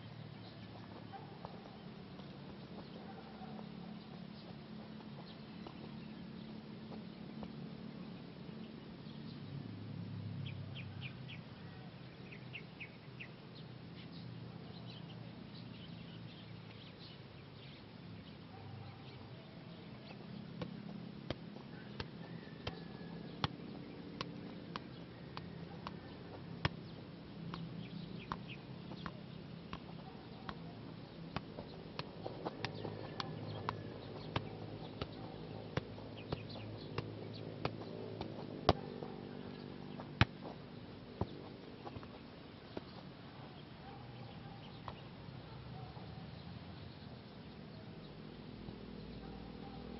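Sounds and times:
birds chirping: 0.0 - 9.7, 10.4 - 49.9
low outdoor hum: 0.0 - 49.9
soccer ball being kicked: 0.9 - 3.0, 20.1 - 43.0.

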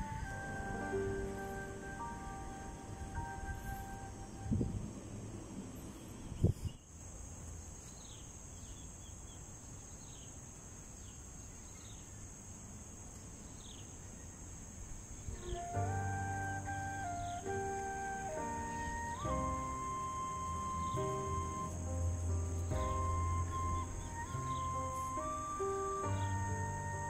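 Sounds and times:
background music with held notes: 0.0 - 4.7, 15.4 - 27.0.

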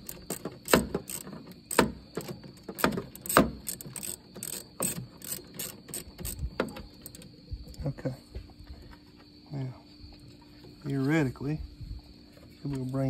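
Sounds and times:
sharp clicks and knocks: 0.0 - 7.3.

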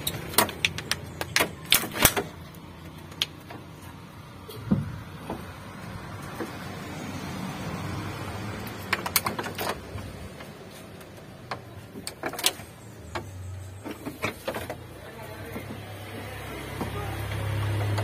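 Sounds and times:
metal clicks and knocks: 0.0 - 6.7, 8.6 - 15.8.

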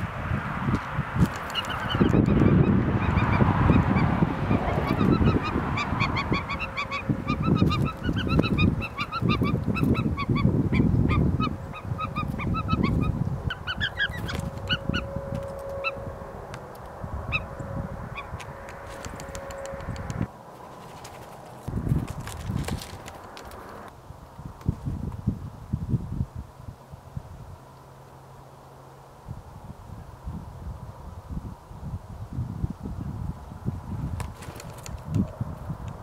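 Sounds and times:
wind rumbling on microphone: 0.0 - 27.7, 29.1 - 36.0
birds calling: 1.2 - 16.0, 16.6 - 21.7.

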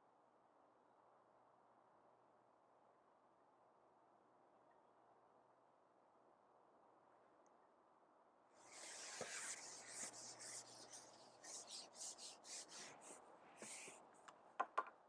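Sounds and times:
scratchy rustling and rubbing: 8.6 - 14.0.

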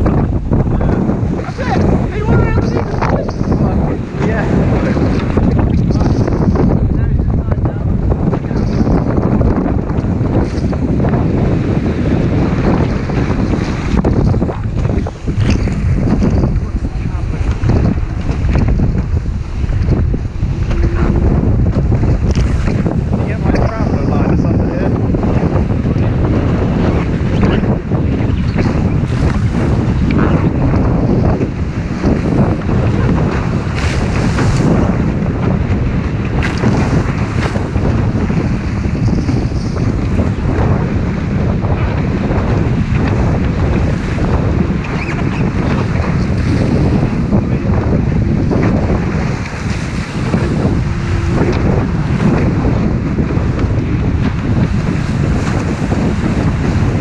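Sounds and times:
rushing water: 0.0 - 57.0
wind buffeting microphone: 0.0 - 57.0.

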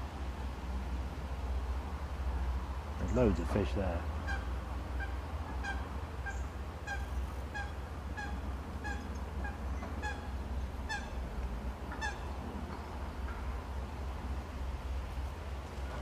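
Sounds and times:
bird calling: 4.2 - 13.6.

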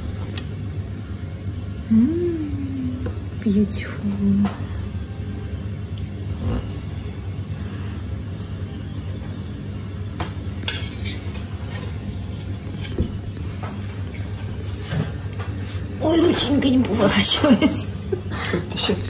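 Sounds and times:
steady low hum: 0.0 - 19.0
tableware clinking: 10.6 - 13.2.

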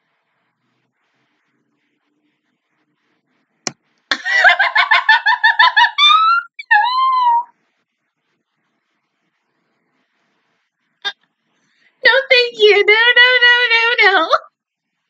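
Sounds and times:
woman laughing: 4.1 - 7.5
woman squealing: 5.7 - 7.5.

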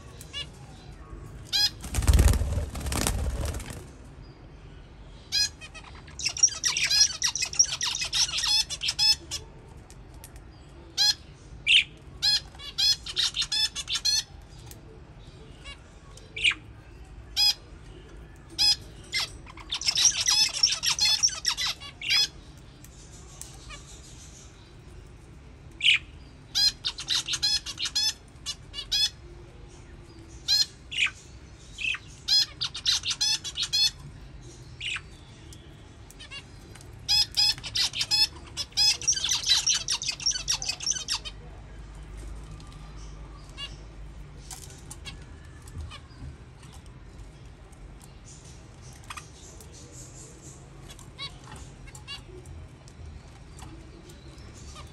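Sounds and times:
budgerigars chirping and chattering: 1.5 - 3.9, 5.3 - 9.4, 10.9 - 14.8, 17.3 - 17.7, 18.4 - 24.8, 25.8 - 29.2, 30.2 - 35.5, 36.1 - 41.5, 48.0 - 54.9.

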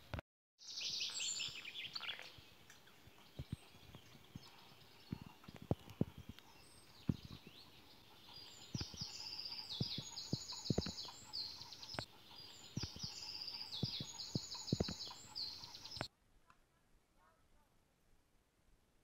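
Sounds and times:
footsteps on paved path: 1.1 - 12.1, 12.7 - 16.1
songbird singing trilled phrase: 3.2 - 16.1.

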